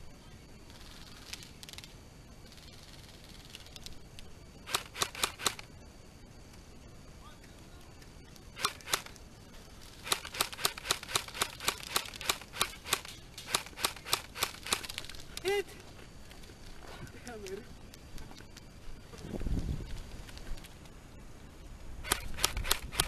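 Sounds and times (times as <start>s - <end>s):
airsoft gun shots: 8.6s - 9.1s, 10.0s - 14.9s.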